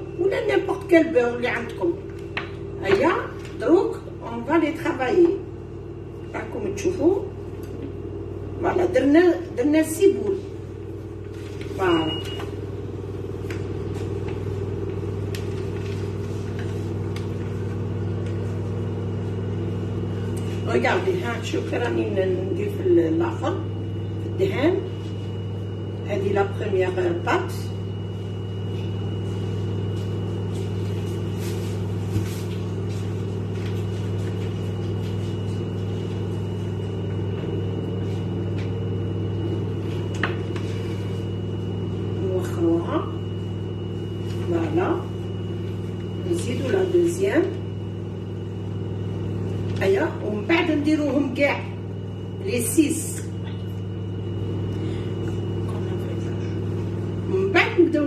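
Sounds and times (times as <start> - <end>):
low machine hum: 0.0 - 58.0
pastry brush strokes on dough: 28.8 - 36.2.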